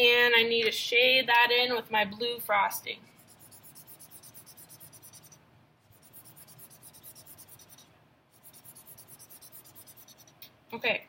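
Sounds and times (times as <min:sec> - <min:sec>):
marker scratching on paper: 0:03.2 - 0:10.4.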